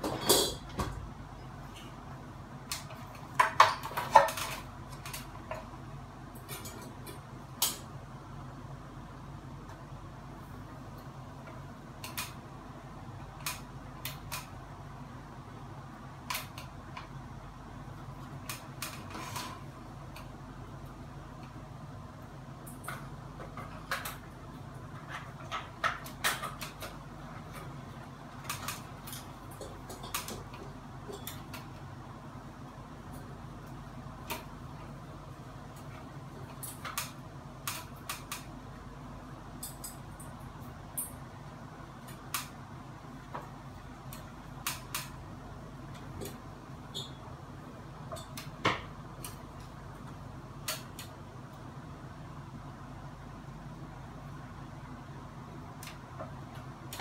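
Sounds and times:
steady low hum: 0.0s - 57.0s
hands clicking and tapping on fan: 11.0s - 12.4s, 22.6s - 31.8s, 35.7s - 38.6s.

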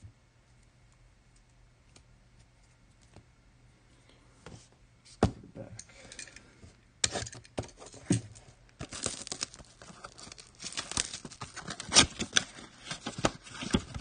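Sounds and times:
packaging crinkling and tearing: 8.8s - 14.0s.

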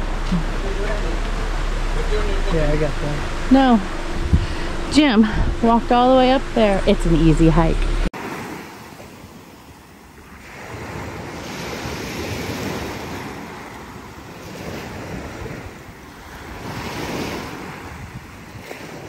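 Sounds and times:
small waves breaking on beach: 8.2s - 19.0s.

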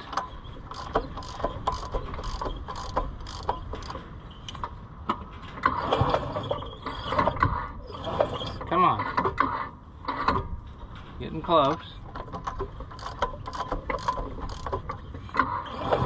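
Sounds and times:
engine metallic clicks: 0.1s - 5.7s, 12.2s - 15.5s.

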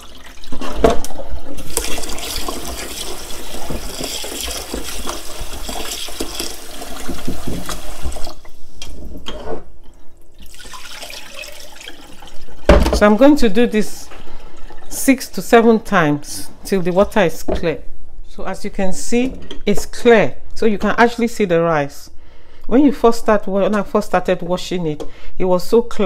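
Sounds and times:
water poured into sink: 0.0s - 8.6s, 10.3s - 12.8s
tap running into pot: 1.7s - 8.3s.

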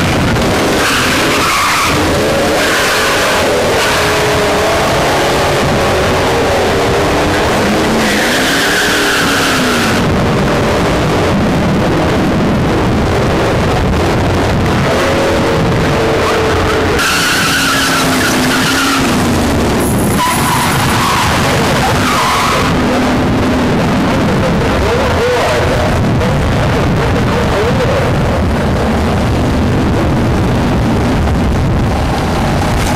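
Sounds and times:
tires squealing: 0.0s - 11.4s, 14.7s - 25.8s
drag cars accelerating: 0.0s - 32.9s.

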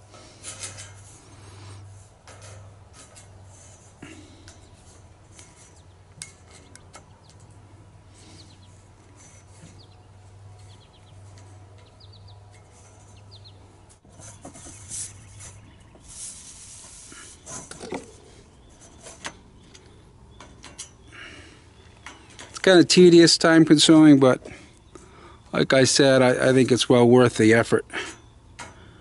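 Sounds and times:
rustling: 0.0s - 20.0s
birds chirping faintly: 0.0s - 29.0s
low steady hum: 0.0s - 29.0s.

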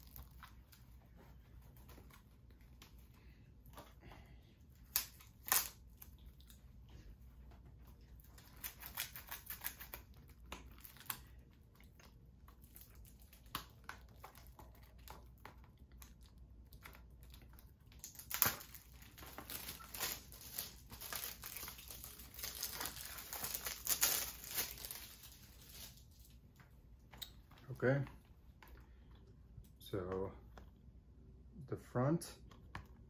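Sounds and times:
plastic wrap crinkling and tearing: 0.0s - 3.9s, 4.7s - 7.1s, 7.7s - 27.8s.

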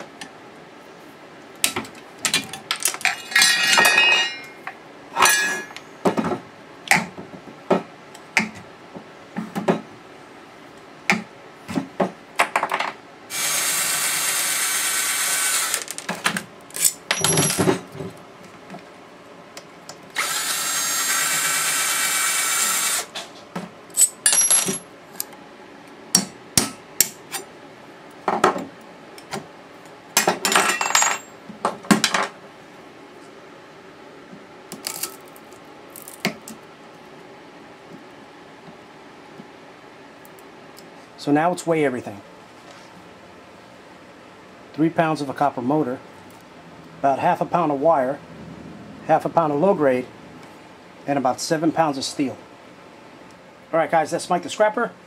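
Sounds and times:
tools and metal parts clanking: 2.2s - 5.8s, 15.8s - 18.1s, 24.0s - 25.3s, 30.2s - 32.4s
power drill running: 13.3s - 15.9s, 20.2s - 23.1s.

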